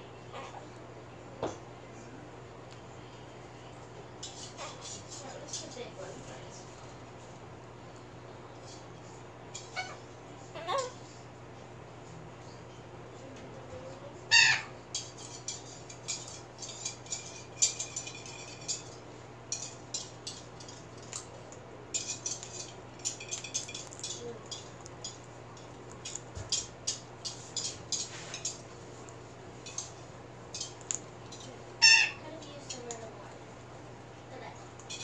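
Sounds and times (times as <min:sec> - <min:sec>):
parrot chirp: 0:09.6 - 0:11.0, 0:14.3 - 0:14.8, 0:31.8 - 0:32.2.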